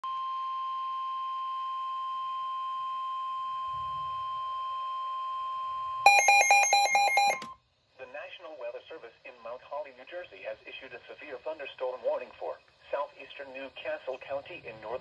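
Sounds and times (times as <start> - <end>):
rapid loud alarm beeps: 6.1 - 7.5
steady high alarm tone: 6.1 - 7.5.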